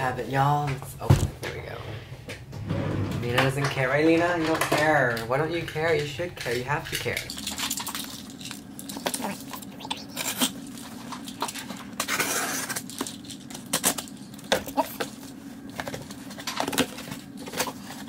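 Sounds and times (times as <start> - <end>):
box cutter scraping tape: 12.0 - 12.8.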